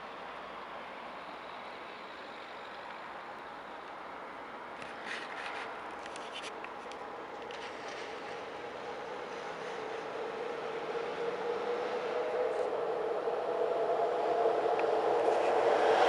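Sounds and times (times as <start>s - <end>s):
electric train approaching: 8.1s - 16.0s.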